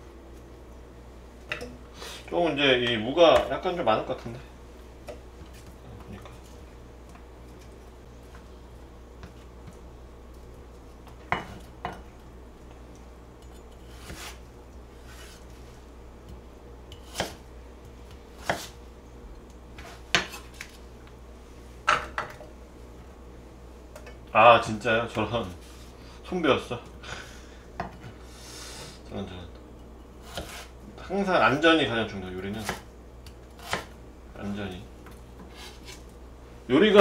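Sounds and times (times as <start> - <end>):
knife slicing on cutting board: 13.9 - 14.4, 17.0 - 17.4, 18.4 - 18.8, 30.2 - 30.7.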